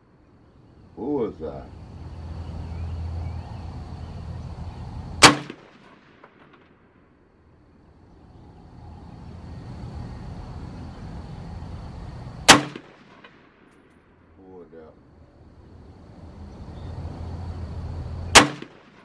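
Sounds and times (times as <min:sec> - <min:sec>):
gunshots: 0:05.2 - 0:06.7, 0:12.4 - 0:13.5, 0:18.3 - 0:19.0.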